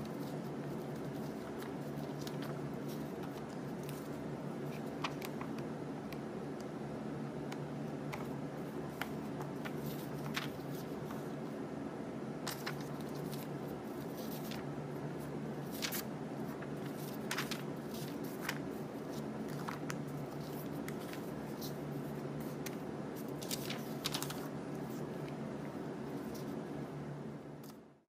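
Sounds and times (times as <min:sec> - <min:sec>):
paper rustling and sliding: 0:00.0 - 0:05.6, 0:08.1 - 0:11.4, 0:12.4 - 0:14.7, 0:15.6 - 0:25.2
low room hum: 0:00.0 - 0:28.0.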